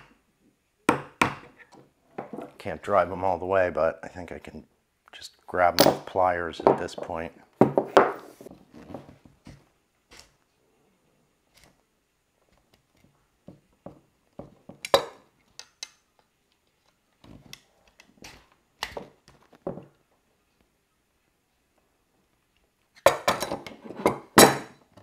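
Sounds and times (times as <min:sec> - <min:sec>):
pliers clicking on metal rods: 0:14.8 - 0:18.1.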